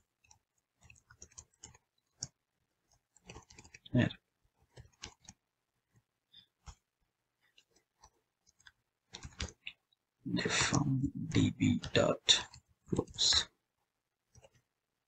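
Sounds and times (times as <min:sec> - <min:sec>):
keyboard keys clicking: 0:00.2 - 0:02.4.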